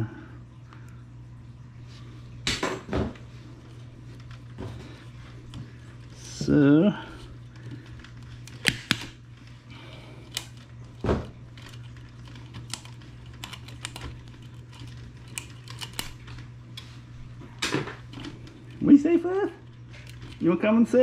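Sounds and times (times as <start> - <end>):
steady low hum: 0.0 - 21.0
plastic clips clicking: 7.6 - 9.2, 10.2 - 10.7, 11.6 - 16.4.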